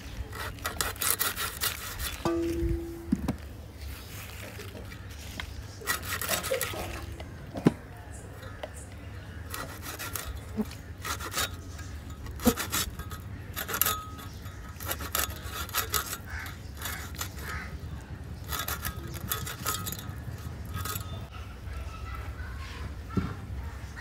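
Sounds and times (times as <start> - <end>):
fish scraped against metal blade: 0.2 - 3.1, 5.7 - 7.1, 9.4 - 17.8, 18.4 - 21.3.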